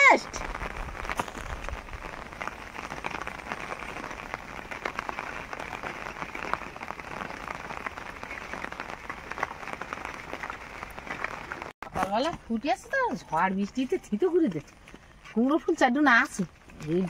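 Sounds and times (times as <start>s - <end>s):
heavy rain falling: 0.0s - 11.8s.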